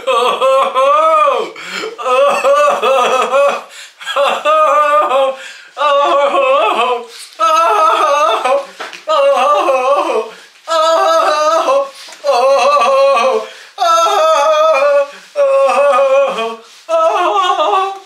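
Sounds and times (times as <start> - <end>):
man singing wordless tune: 0.0 - 18.0.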